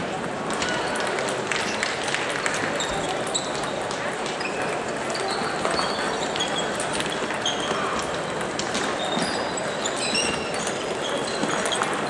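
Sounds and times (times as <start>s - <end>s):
murmur of people: 0.0s - 12.0s
shoes squeaking on floor: 2.8s - 12.0s.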